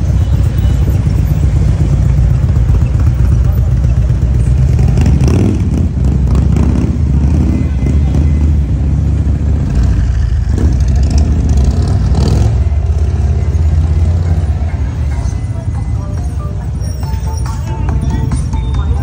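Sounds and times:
motorcycle engines rumbling: 0.0s - 19.0s.

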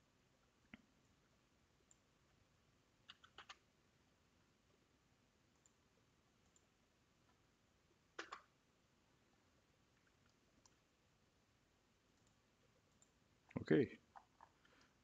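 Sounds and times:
computer mouse clicks: 3.0s - 3.6s, 6.4s - 6.7s, 8.2s - 8.5s.

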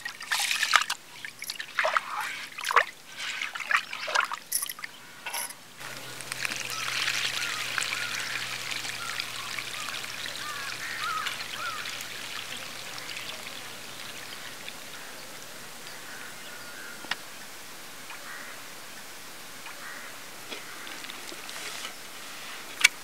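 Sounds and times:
water splashing and trickling: 0.0s - 16.3s.

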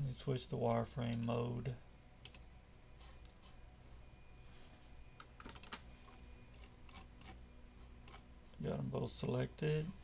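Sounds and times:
faint low hum: 0.0s - 10.0s
computer mouse and key clicks: 1.0s - 1.4s, 2.2s - 3.6s, 5.2s - 5.8s, 6.6s - 7.4s, 8.0s - 8.2s.

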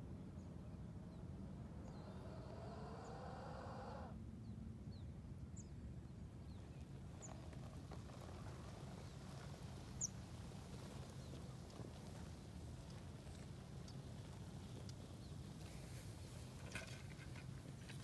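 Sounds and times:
low outdoor rumble: 0.0s - 18.0s.

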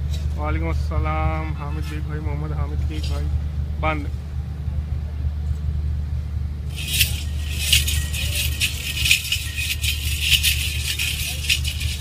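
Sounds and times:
steady low hum: 0.0s - 12.0s
harness bells jingling: 6.7s - 12.0s.

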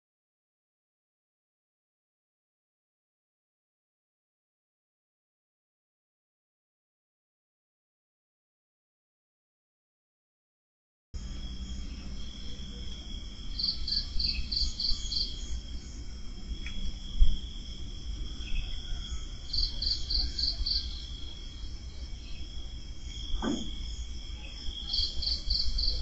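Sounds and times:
crickets trilling: 11.2s - 26.0s
insect pulsing chirps: 11.2s - 26.0s.

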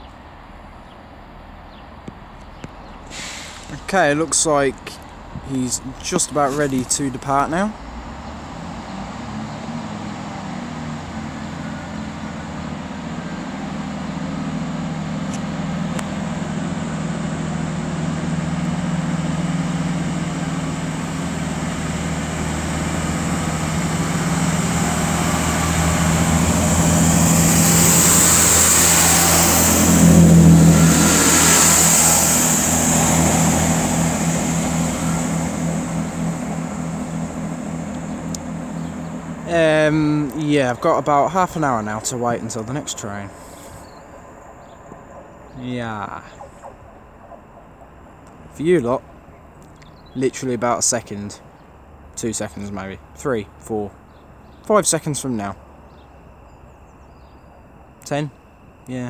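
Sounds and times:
diesel train engine drone: 0.0s - 59.0s
wheels hissing on rail: 3.0s - 48.5s.

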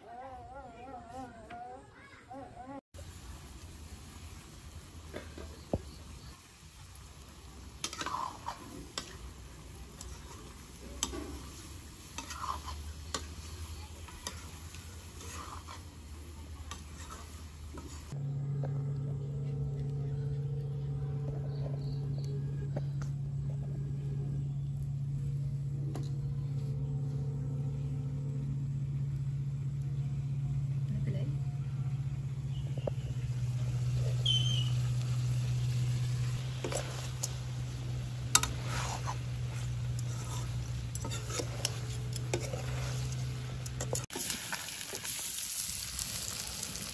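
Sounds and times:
steady low hum: 2.5s - 44.1s
meat sizzling: 3.0s - 18.2s, 32.0s - 46.9s
metal ladle scraping a wok: 7.8s - 9.3s, 10.0s - 16.1s, 16.7s - 18.2s, 34.0s - 44.1s.

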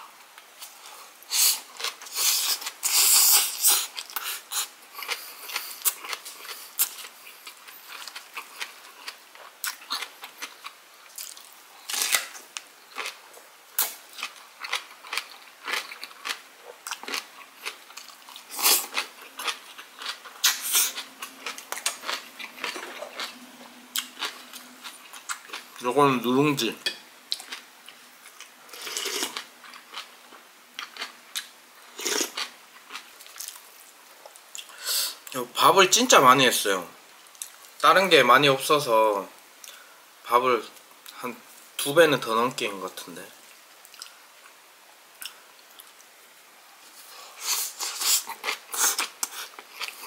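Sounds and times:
crisp crunchy chewing: 13.8s - 25.8s.

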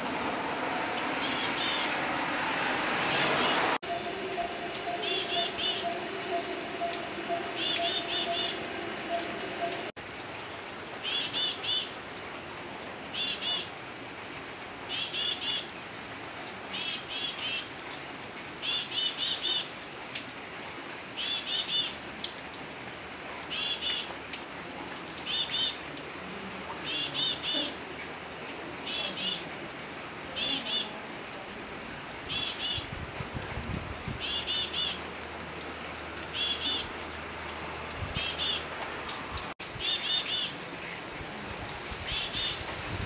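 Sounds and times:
steady background hiss: 3.3s - 15.2s.

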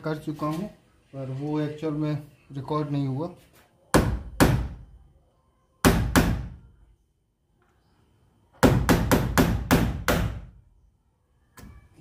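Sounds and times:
hammer striking nail on sheet metal: 3.9s - 4.8s, 5.8s - 6.6s, 8.6s - 10.5s.

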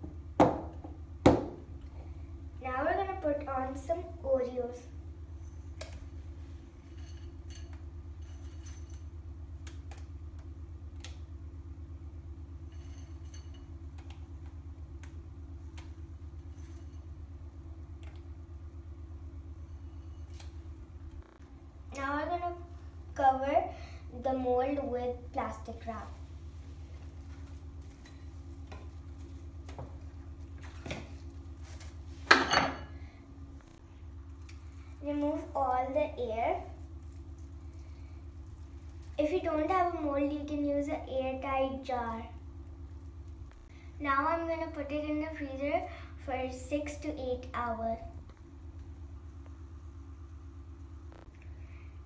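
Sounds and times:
steady low hum: 0.0s - 52.0s
bowl clicks and clinks: 6.8s - 9.2s.

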